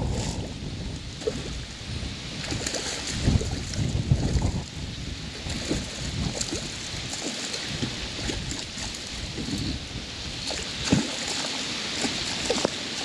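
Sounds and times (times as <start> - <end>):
fish thrashing and splashing: 2.4 - 4.7, 5.4 - 13.0
water sloshing: 2.4 - 4.7, 5.3 - 13.0.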